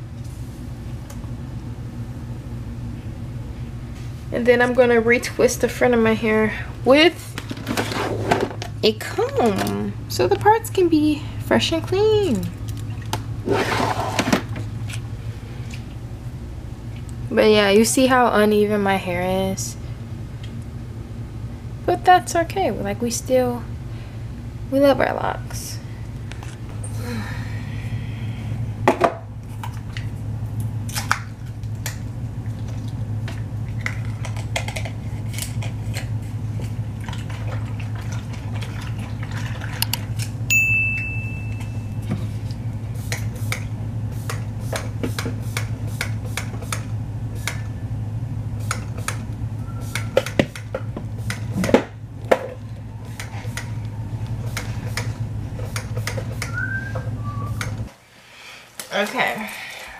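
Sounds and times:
steady low hum: 0.0s - 59.9s
short high ding: 40.5s - 42.0s.

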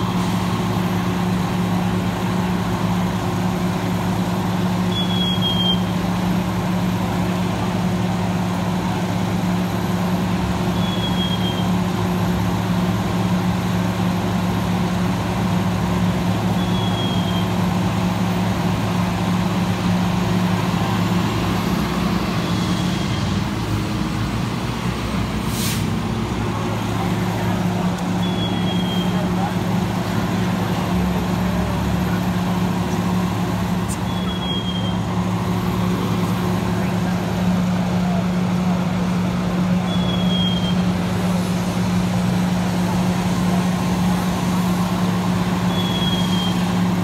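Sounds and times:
diesel engines running: 0.0s - 47.0s.

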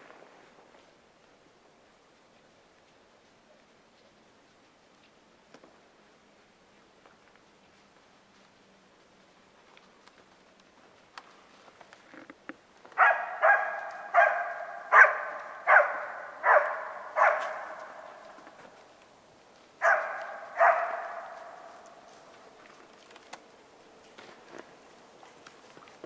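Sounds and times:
dog barking loudly: 13.0s - 18.3s, 19.8s - 21.8s.

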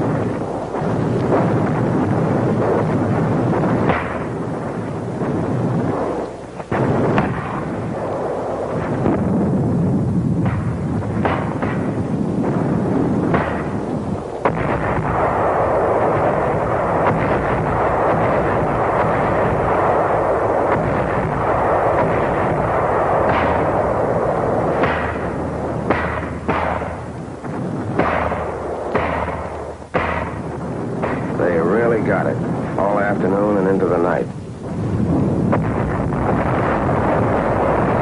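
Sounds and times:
artillery rumble: 0.0s - 38.0s
gunshots and blasts: 0.0s - 38.0s.

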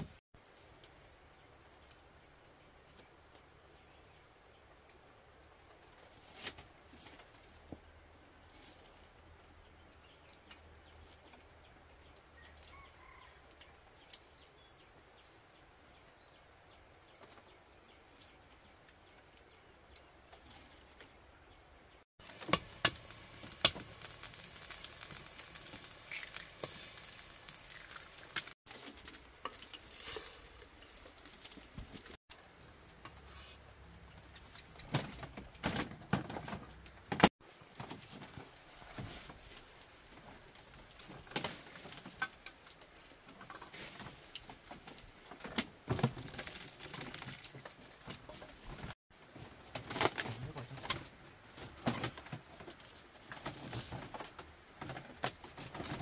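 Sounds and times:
faint bird chirps: 12.4s - 13.6s.

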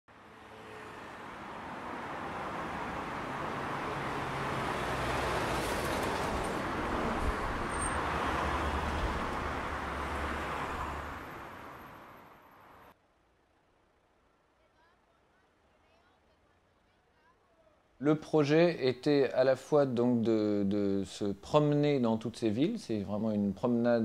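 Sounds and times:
road noise: 0.1s - 13.0s.

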